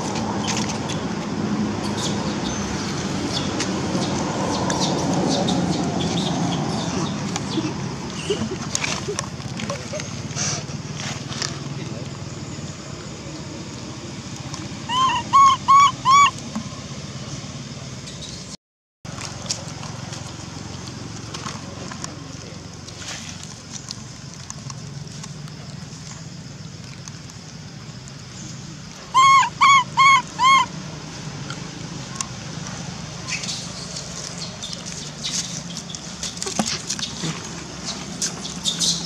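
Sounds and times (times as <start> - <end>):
baby monkey crying: 14.9 - 16.4, 29.1 - 30.7.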